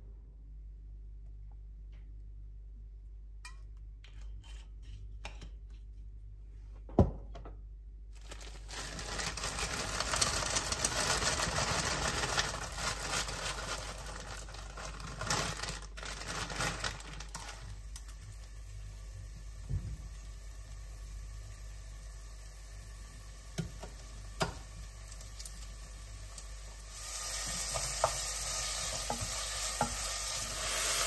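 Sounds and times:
plastic bag crinkling: 8.1 - 18.2
diced onion rattling into pot: 8.2 - 17.7.

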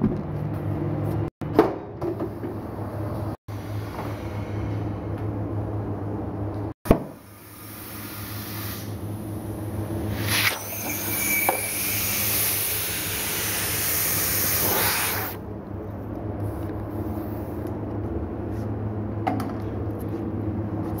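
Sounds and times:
steady low hum: 2.6 - 21.0
compressed air hissing: 7.2 - 9.4, 10.1 - 15.4.

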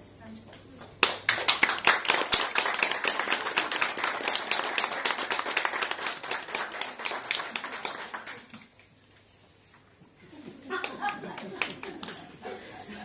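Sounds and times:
audience applauding: 1.0 - 8.7, 10.8 - 12.4.

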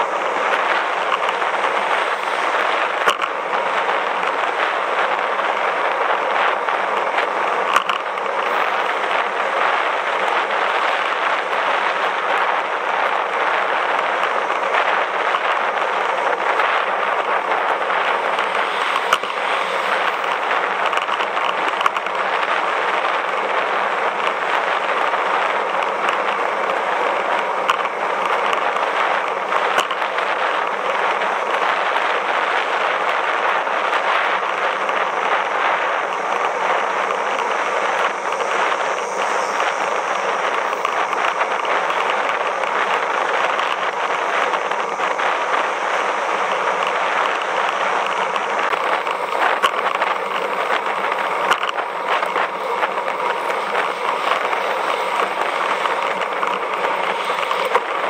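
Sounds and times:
bicycle riding rushing hiss: 0.0 - 58.0
crackle of road vibration: 0.0 - 58.0.

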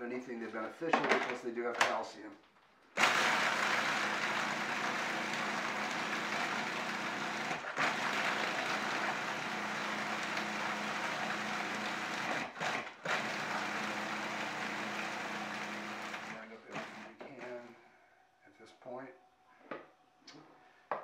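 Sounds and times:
food processor grinding: 3.0 - 17.4.

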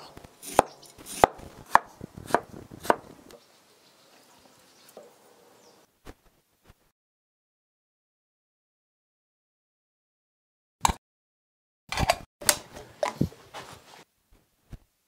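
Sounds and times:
cleaver chopping on wooden board: 0.4 - 3.1.

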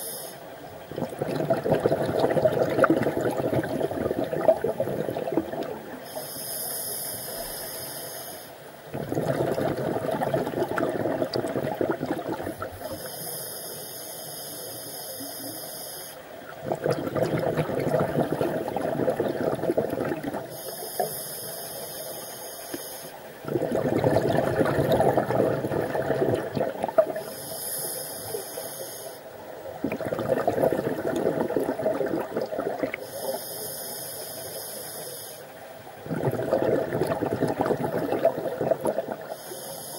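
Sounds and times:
regulator inhalation hiss: 0.0 - 0.5, 6.0 - 8.6, 12.8 - 16.2, 20.5 - 23.3, 27.2 - 29.3, 33.0 - 35.6, 39.2 - 39.9
exhaled bubbles rushing: 0.8 - 6.0, 8.9 - 13.0, 16.5 - 20.5, 23.4 - 27.3, 29.7 - 33.0, 36.0 - 39.3.

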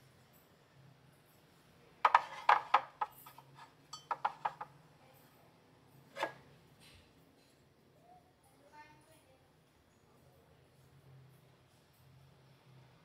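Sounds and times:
ceramic clinks and knocks: 2.0 - 4.7
ceramic mug clink: 2.1 - 4.7.

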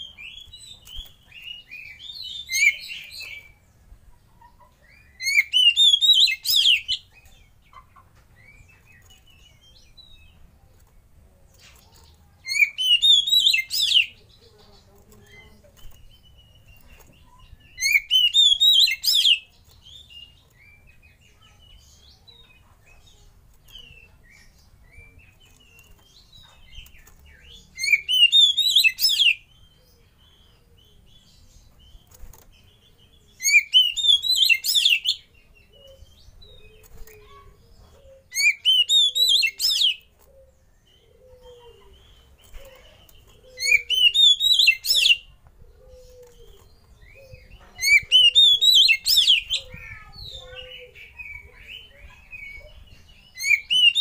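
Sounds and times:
bird singing rising notes: 43.4 - 54.0.

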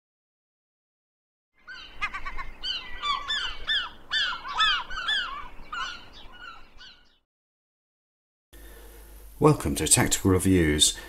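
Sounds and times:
birds making short harsh calls: 1.6 - 7.2.

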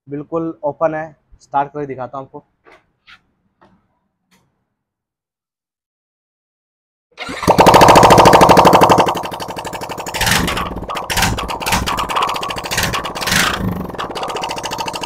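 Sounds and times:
motorcycle engine revving: 7.2 - 15.0.

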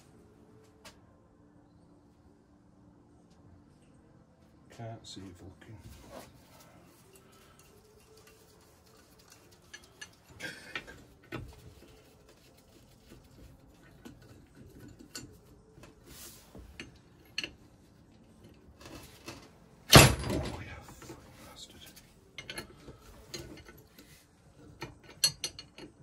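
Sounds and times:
spanner clinking on metal: 7.1 - 11.6, 12.6 - 15.8, 22.4 - 26.0.

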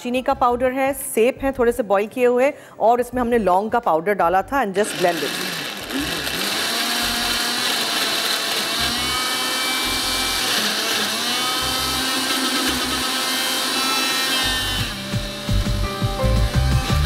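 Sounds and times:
blender motor whirring: 4.8 - 15.8.

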